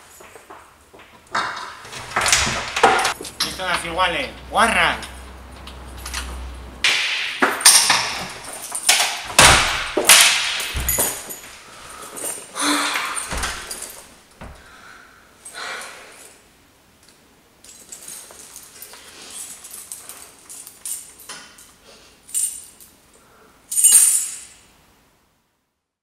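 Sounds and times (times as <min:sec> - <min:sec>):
keys jangling: 0:01.3 - 0:06.7, 0:07.4 - 0:14.7, 0:17.6 - 0:24.6
clothes rustling: 0:07.5 - 0:14.8
low thumps: 0:09.3 - 0:11.5.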